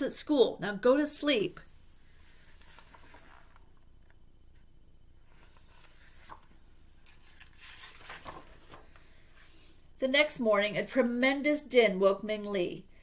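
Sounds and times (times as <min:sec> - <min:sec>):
paper page rustling: 0:02.2 - 0:04.1, 0:05.3 - 0:09.6.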